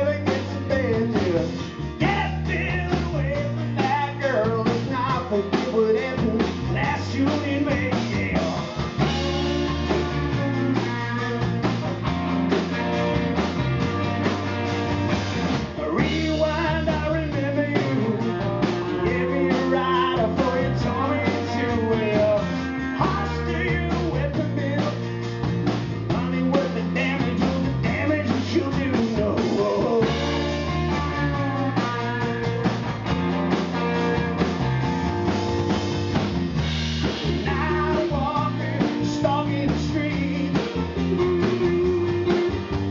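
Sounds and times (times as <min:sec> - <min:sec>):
drums: 0:00.0 - 0:42.9
electric bass: 0:00.0 - 0:42.9
electric guitar: 0:00.0 - 0:42.9
lead vocals: 0:00.0 - 0:42.9.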